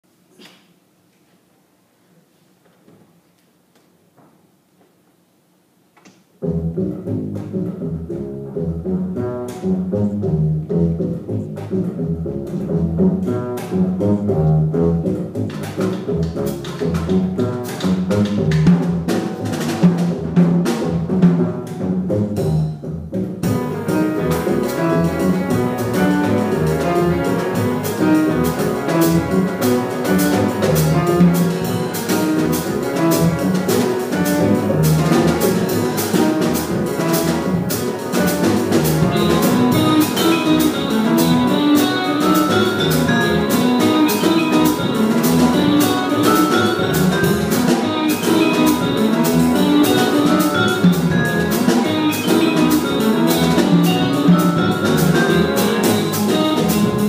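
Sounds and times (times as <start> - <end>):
double bass: 6.4 - 57.0
piano: 6.4 - 57.0
drum kit with cymbals: 6.5 - 57.0
guitar: 23.4 - 57.0
vibraphone notes: 23.8 - 57.0.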